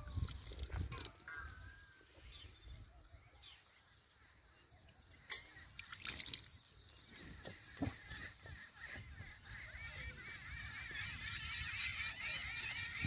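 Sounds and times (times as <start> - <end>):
milk squirting: 0.0 - 1.3, 5.7 - 7.4.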